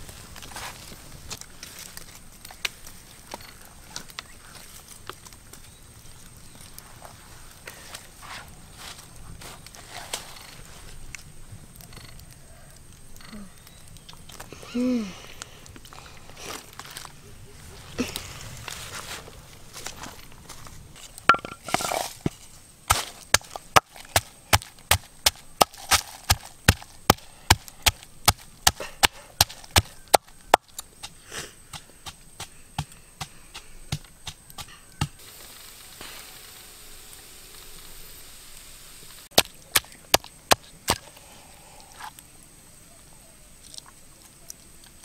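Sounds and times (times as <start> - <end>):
blade chopping wood: 21.3 - 35.2, 39.3 - 41.0.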